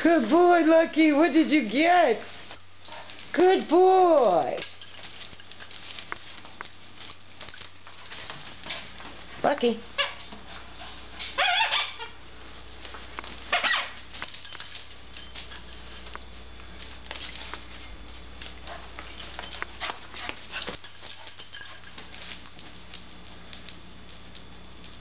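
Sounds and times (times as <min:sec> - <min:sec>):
light clicks and scuffling: 0:02.2 - 0:11.4, 0:12.4 - 0:25.0
dog squealing: 0:11.4 - 0:12.2, 0:13.5 - 0:14.0.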